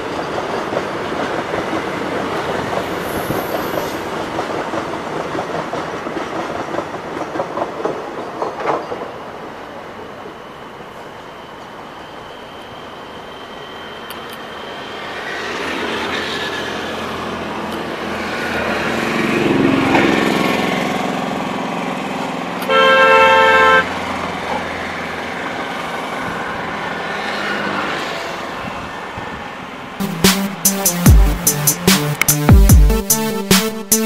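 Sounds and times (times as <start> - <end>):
passing train rumble: 0.0 - 34.0
locomotive horn blast: 22.6 - 24.0.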